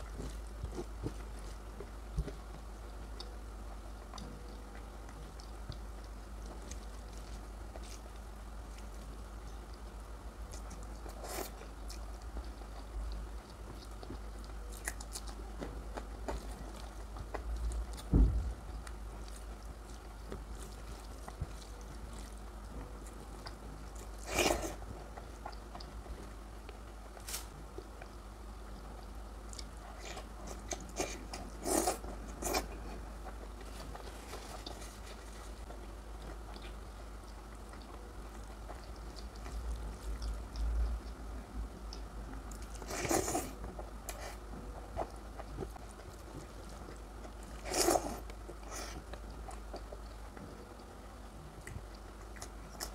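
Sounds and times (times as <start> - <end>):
chewing: 0.0 - 9.9, 10.5 - 52.9.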